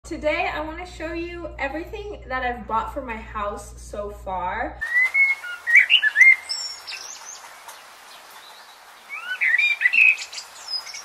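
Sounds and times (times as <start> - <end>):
small birds chirping: 4.8 - 11.0
steady hiss: 4.8 - 11.0.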